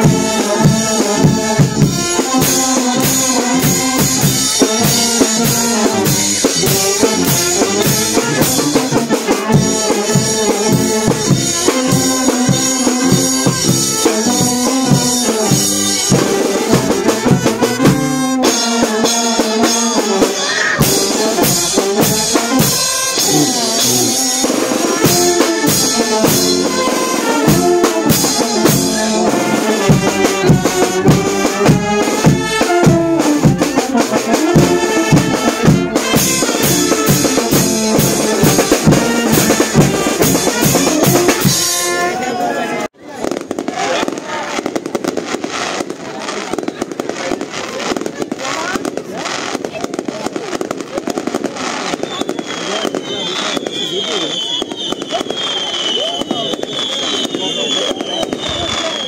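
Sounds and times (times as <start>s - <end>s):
drum kit beat: 0.0s - 42.4s
brass band playing: 0.0s - 59.0s.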